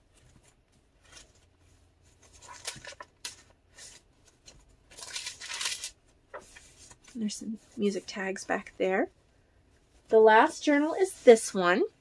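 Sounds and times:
paper pages rustling: 0.0 - 8.7.

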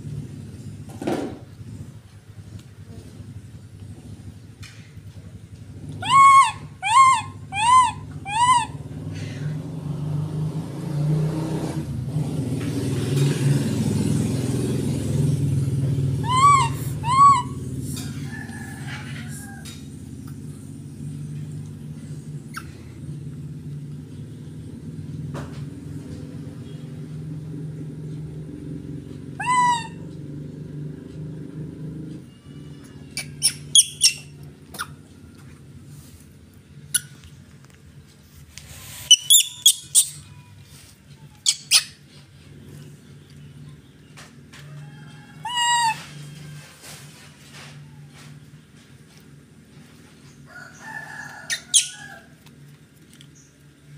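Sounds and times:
monkey squeaky calls: 5.9 - 9.2, 16.2 - 17.8, 29.3 - 30.1, 33.1 - 35.0, 39.1 - 40.5, 41.3 - 42.1, 45.4 - 46.3, 51.5 - 52.2.

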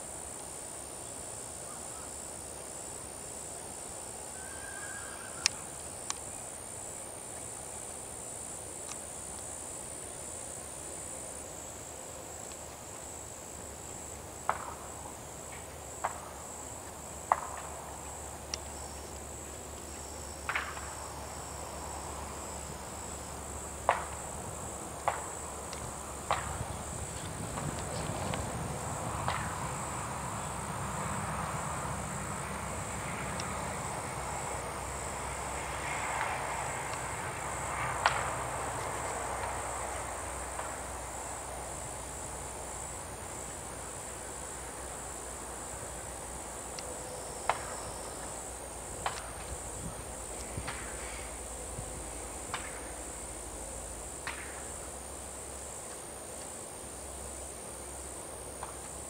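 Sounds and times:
insects chirring: 0.0 - 59.0.

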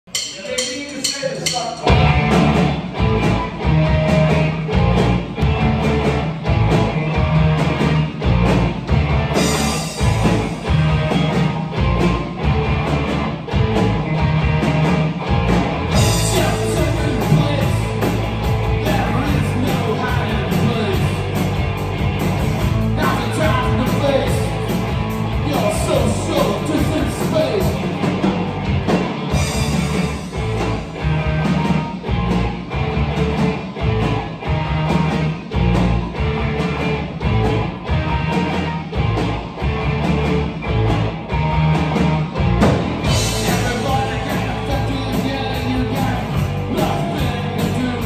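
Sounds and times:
bass guitar: 0.0 - 48.0
drum kit: 0.0 - 48.0
cymbals crashing: 0.1 - 2.1
electric guitar: 1.8 - 48.0.

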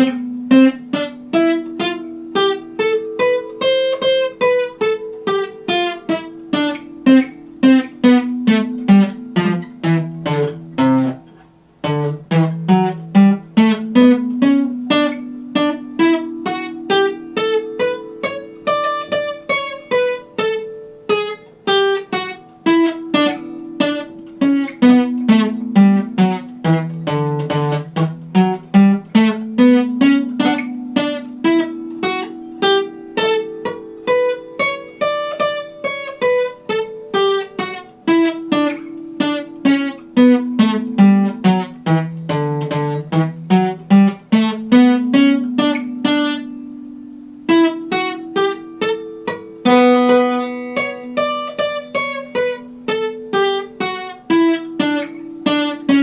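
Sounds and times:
acoustic guitar picking: 0.0 - 56.0.

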